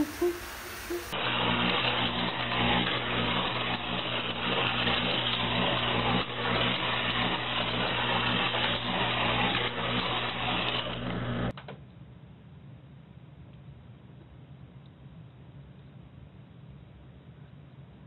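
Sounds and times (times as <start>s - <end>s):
toy car motor humming and clicking: 0.0s - 11.5s.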